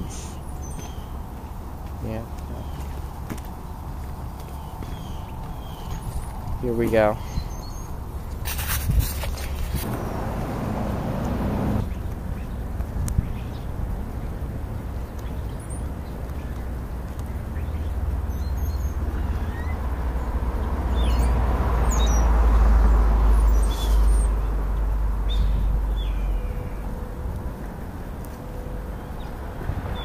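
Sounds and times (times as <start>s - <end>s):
steady low rumble: 0.0s - 18.3s
vehicle passing on road: 7.8s - 12.8s, 15.8s - 30.0s.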